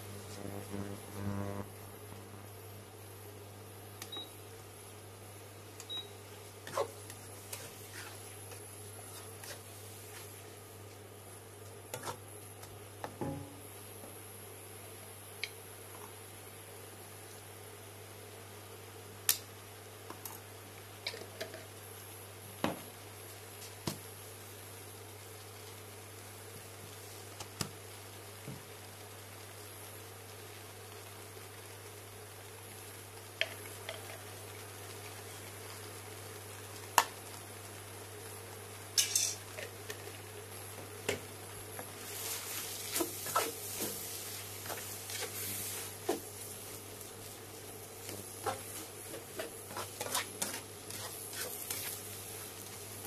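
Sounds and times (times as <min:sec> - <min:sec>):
steady low hum: 0:00.0 - 0:18.7
cooktop hum: 0:00.0 - 0:53.0
noodles sizzling in wok: 0:00.0 - 0:53.0
spatula scraping a metal wok: 0:48.4 - 0:52.1.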